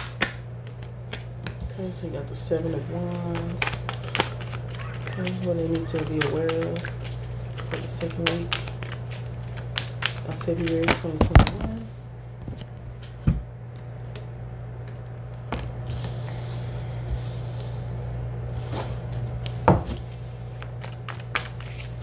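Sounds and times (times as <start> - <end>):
steady low hum: 0.0 - 22.0
cards sliding and shuffling: 3.1 - 11.1, 18.5 - 22.0.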